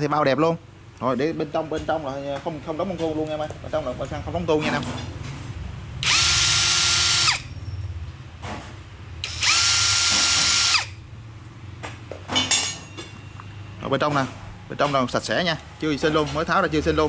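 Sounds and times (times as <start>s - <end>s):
electric drill whining: 6.0s - 7.5s, 9.2s - 11.0s.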